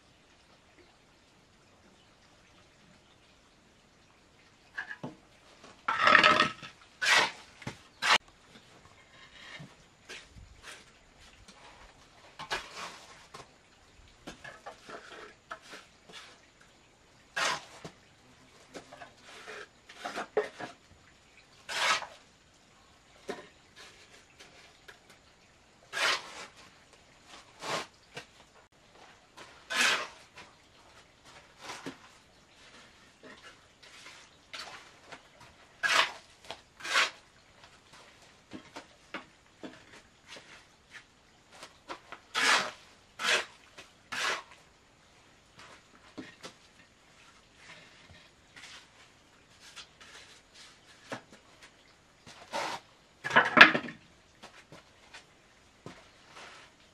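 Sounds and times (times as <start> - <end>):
trowel scraping mortar: 5.9 - 8.3, 12.4 - 13.2, 17.4 - 17.9, 21.7 - 22.2, 25.9 - 26.7, 29.4 - 30.4, 35.8 - 37.2, 41.9 - 44.6, 52.4 - 53.6.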